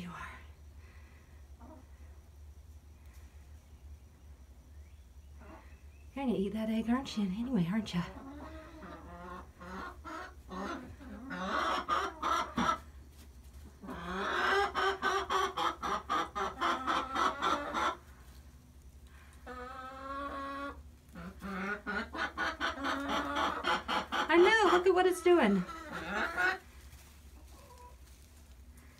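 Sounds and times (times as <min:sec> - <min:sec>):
constant low hum: 0:00.0 - 0:28.9
hens clucking: 0:01.4 - 0:04.0, 0:05.2 - 0:28.9.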